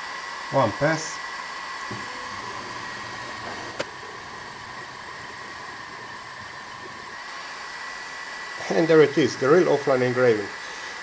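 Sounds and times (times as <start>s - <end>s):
cooling fan hiss with whine: 0.0s - 11.0s.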